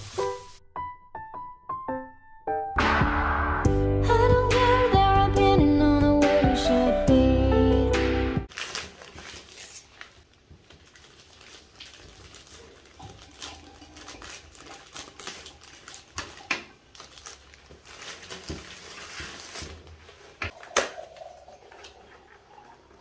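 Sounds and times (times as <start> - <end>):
plastic rustling and crinkling: 8.5 - 22.3.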